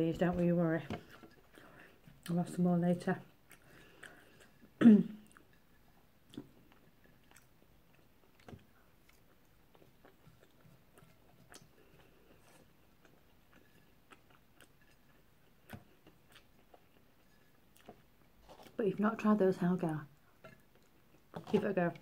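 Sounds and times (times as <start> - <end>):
quiet chewing: 0.1 - 22.0.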